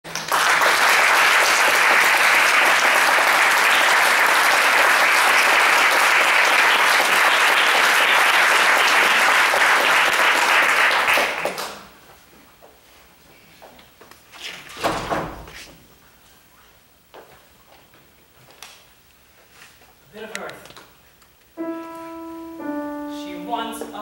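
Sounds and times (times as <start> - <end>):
audience applauding: 0.1 - 11.9.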